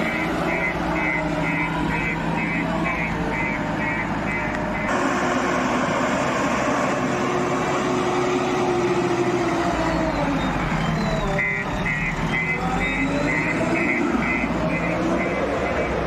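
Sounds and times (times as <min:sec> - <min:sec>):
reversing alarm beeps: 0:00.0 - 0:04.9, 0:09.5 - 0:16.0
diesel engine running under load: 0:00.0 - 0:16.0.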